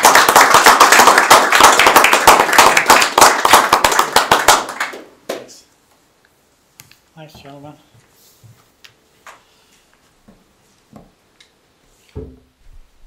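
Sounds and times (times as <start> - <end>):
people applauding: 0.0 - 5.6.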